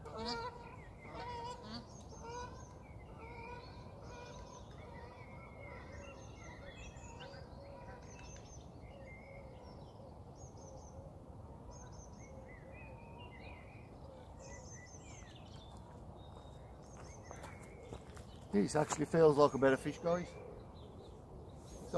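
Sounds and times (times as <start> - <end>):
songbirds chirping: 0.0 - 21.9.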